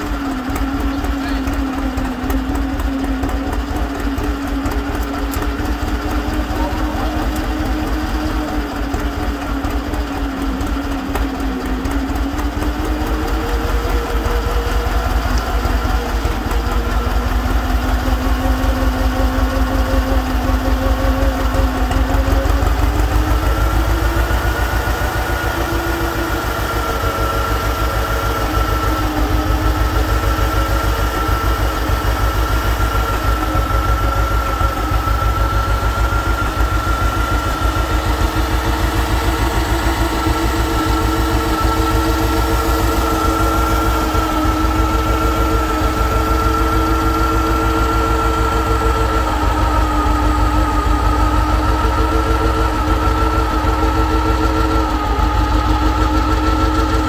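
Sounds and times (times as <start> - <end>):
tractor engine running: 0.0 - 57.0
higher whine: 12.4 - 57.0
whine wandering in pitch: 12.9 - 57.0.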